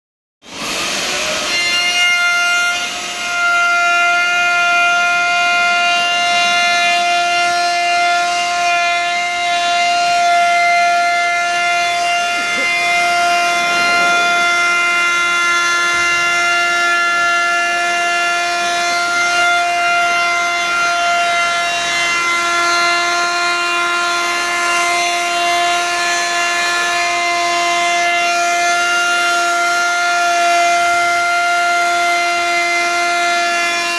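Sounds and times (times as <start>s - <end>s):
electric router whining: 0.5s - 2.0s, 2.7s - 28.3s.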